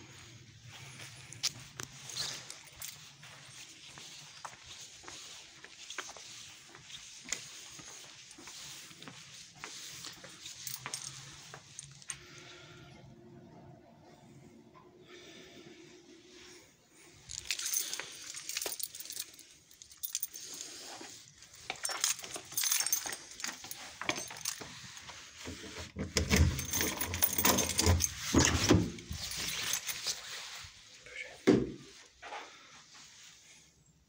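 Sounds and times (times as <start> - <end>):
clothing rustling: 0.1 - 12.3, 16.5 - 31.0
keys jingling: 1.3 - 4.5, 10.0 - 12.2, 17.1 - 30.4.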